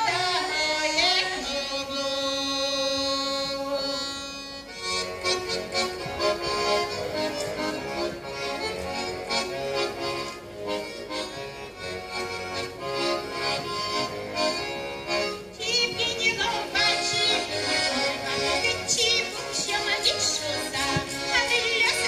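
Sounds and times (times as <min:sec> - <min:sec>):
women singing with vibrato: 0:00.0 - 0:03.8, 0:15.6 - 0:22.0
button accordions playing folk: 0:00.0 - 0:22.0.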